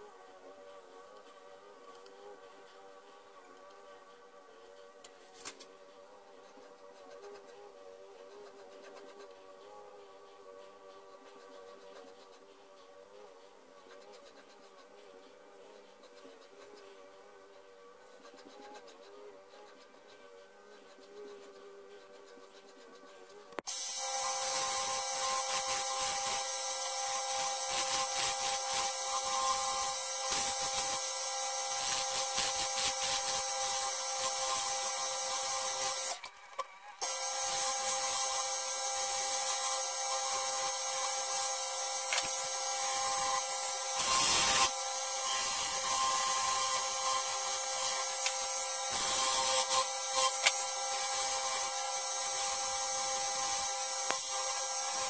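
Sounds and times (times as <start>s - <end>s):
wood lathe humming: 23.6s - 36.2s, 37.0s - 55.0s
turning tool scraping wood: 37.2s - 52.4s.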